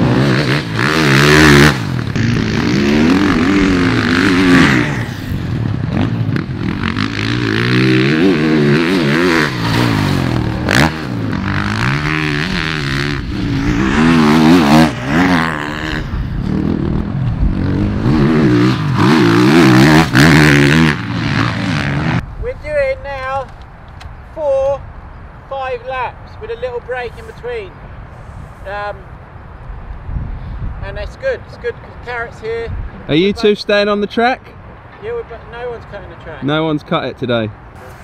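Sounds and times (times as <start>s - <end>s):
motocross bike engine revving: 0.0s - 22.2s.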